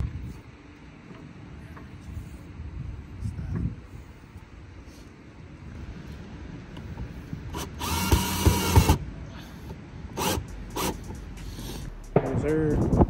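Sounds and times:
cordless drill driving screw: 0:07.5 - 0:09.0, 0:10.2 - 0:11.0.

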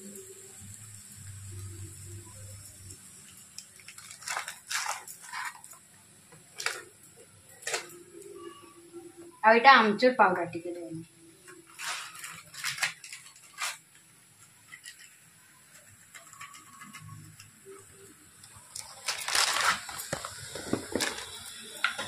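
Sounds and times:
spice packet rustling: 0:02.9 - 0:08.6, 0:11.4 - 0:22.0.

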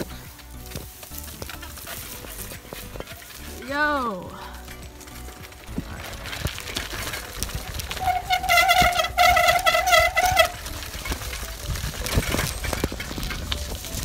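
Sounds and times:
tyres rumbling on dirt trail: 0:00.0 - 0:14.0
bicycle brake squealing: 0:07.0 - 0:14.0.

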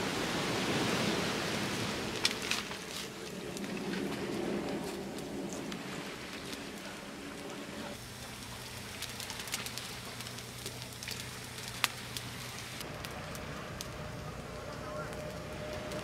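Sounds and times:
fire crackling: 0:00.0 - 0:16.0.

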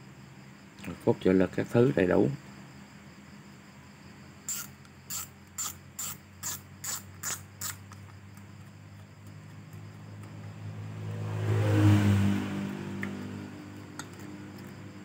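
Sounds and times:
fishing reel ratchet clicks: 0:04.5 - 0:08.1.

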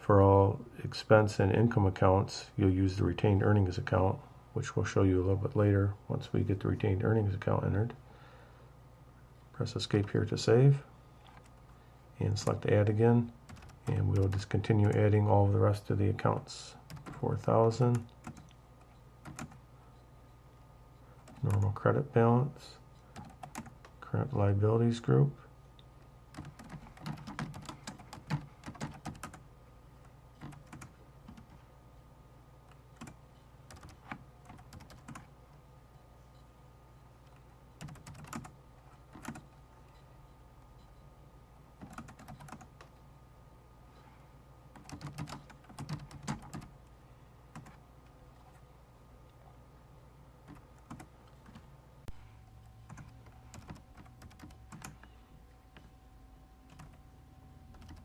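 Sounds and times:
typing on computer keyboard: 0:13.5 - 0:15.1, 0:16.9 - 0:17.2, 0:17.9 - 0:18.6, 0:19.2 - 0:19.6, 0:23.1 - 0:23.9, 0:26.3 - 0:29.4, 0:30.4 - 0:31.6, 0:33.0 - 0:35.3, 0:37.8 - 0:39.5, 0:41.8 - 0:42.7, 0:44.7 - 0:46.7, 0:47.5 - 0:47.8, 0:50.4 - 0:51.6, 0:52.9 - 0:55.0, 0:56.7 - 0:57.0, 0:57.7 - 0:58.0.

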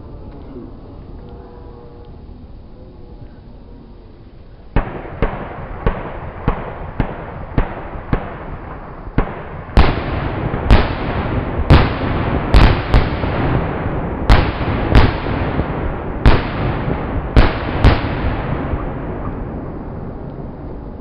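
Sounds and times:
firework crackle: 0:04.7 - 0:21.0
sharp firework bangs: 0:04.8 - 0:20.3.

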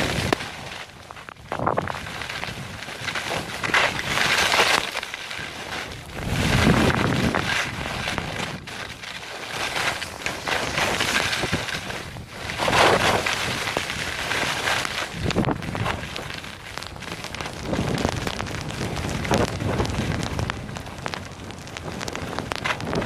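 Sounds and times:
skis scraping over snow: 0:00.0 - 0:23.0
wind on microphone: 0:00.0 - 0:23.0.

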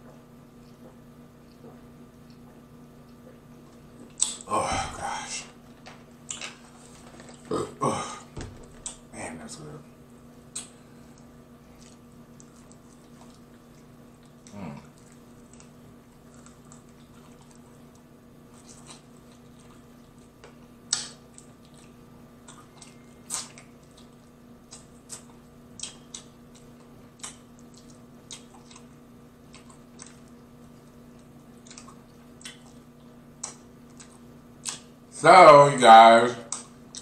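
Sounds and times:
faint steady hum: 0:00.0 - 0:37.0
lip smacks: 0:04.0 - 0:04.5, 0:10.5 - 0:17.6, 0:18.6 - 0:30.4, 0:31.2 - 0:35.0, 0:36.5 - 0:37.0
wet chewing: 0:10.5 - 0:35.0, 0:36.5 - 0:37.0.

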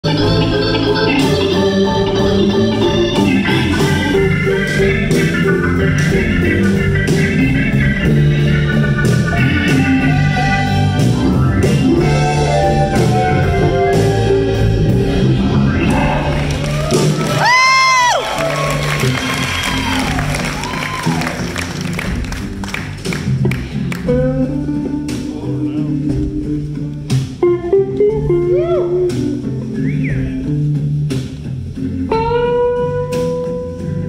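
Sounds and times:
electric guitar: 0:00.0 - 0:34.0
organ chords: 0:00.0 - 0:34.0
drums with cymbal and snare: 0:00.1 - 0:34.0.

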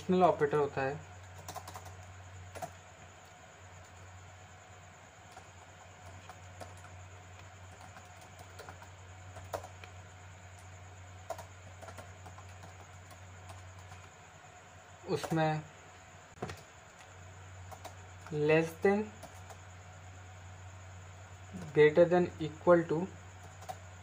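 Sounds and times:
steady low hum: 0:00.0 - 0:24.0
keyboard typing: 0:01.2 - 0:04.0, 0:05.2 - 0:14.2, 0:15.1 - 0:15.6, 0:16.4 - 0:19.6, 0:23.3 - 0:23.9.

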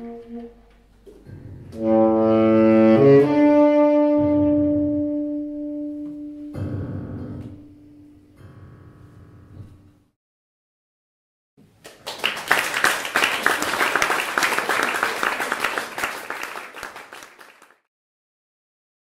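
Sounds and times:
audience applauding: 0:11.8 - 0:17.9.

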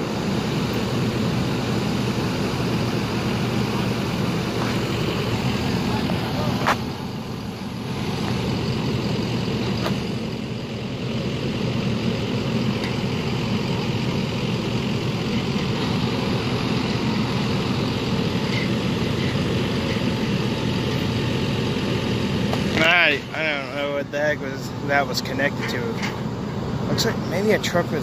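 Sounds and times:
diesel engines running: 0:00.0 - 0:28.0.

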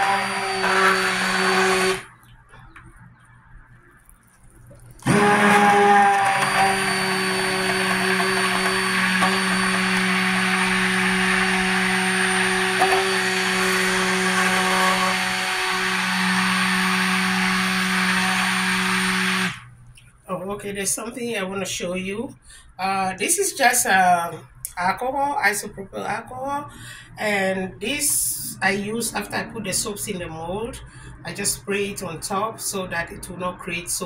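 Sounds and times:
stick blender motor hum: 0:00.0 - 0:02.0, 0:05.0 - 0:19.6.

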